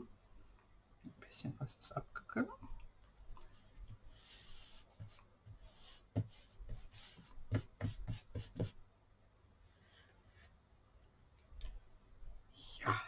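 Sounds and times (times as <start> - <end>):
light pats on paper: 3.4 - 8.8
paper towel rustling and rubbing: 3.6 - 8.7.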